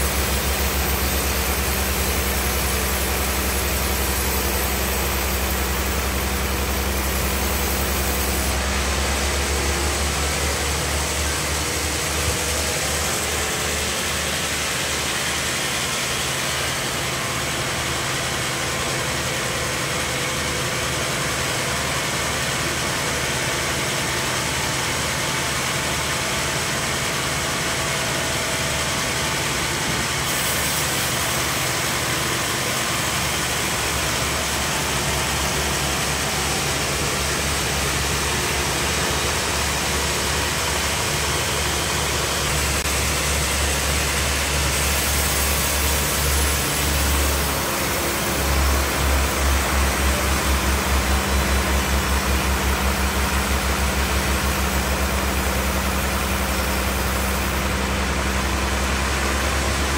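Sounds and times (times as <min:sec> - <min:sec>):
low machine hum: 0:00.0 - 0:59.9
bandsaw cutting through log: 0:42.4 - 0:50.7.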